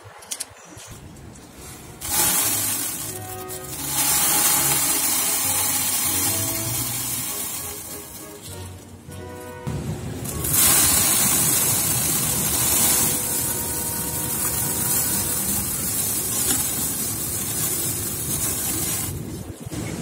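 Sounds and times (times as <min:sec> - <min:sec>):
seeds pouring into a basin: 0:02.0 - 0:08.6, 0:10.2 - 0:19.3
wind rumbling on microphone: 0:09.5 - 0:20.0.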